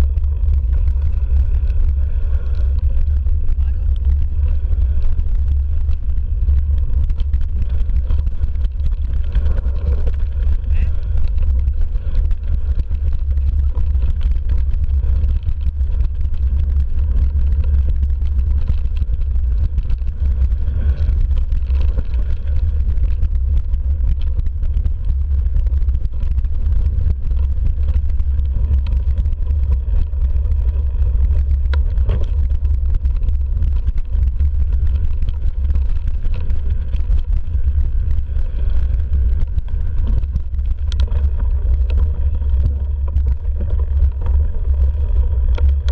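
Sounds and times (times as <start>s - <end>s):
wind buffeting and trail rumble: 0.0s - 45.9s.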